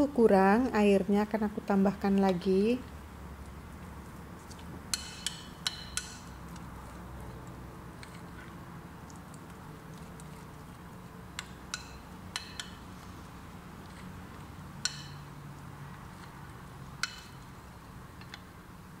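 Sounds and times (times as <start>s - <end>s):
low steady hum: 0.0s - 19.0s
spoon stirring thick batter: 3.4s - 18.5s
spoon clinking on glass bowl: 14.8s - 15.3s.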